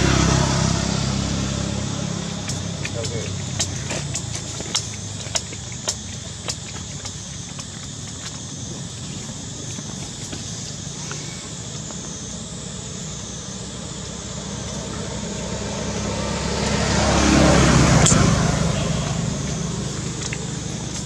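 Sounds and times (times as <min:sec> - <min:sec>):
motor vehicle passing by: 0:00.0 - 0:07.7, 0:12.8 - 0:21.0.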